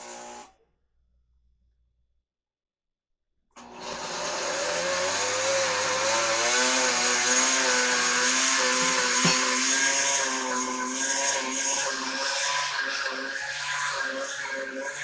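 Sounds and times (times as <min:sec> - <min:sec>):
blender motor running: 0:03.6 - 0:15.0.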